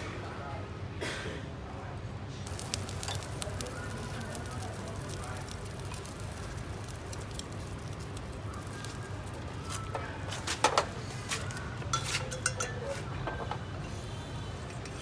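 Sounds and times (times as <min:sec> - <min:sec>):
low background hum: 0:00.0 - 0:13.8
chopsticks clinking on metal pot: 0:11.9 - 0:13.0.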